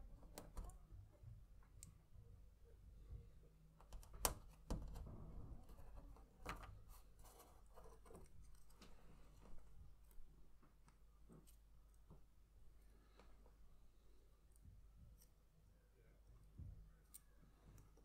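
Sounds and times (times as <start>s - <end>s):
soft rustling: 5.7s - 15.4s.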